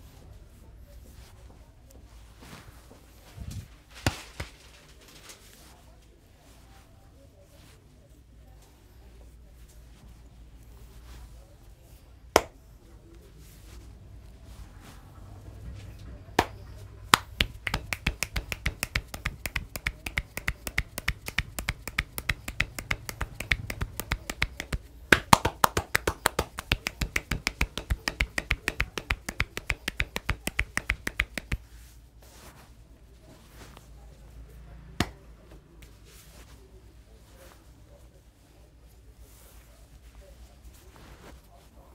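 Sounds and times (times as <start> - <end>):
rapid rhythmic hand slaps: 4.0 - 4.7, 12.3 - 12.6, 16.4 - 31.7, 35.0 - 35.2.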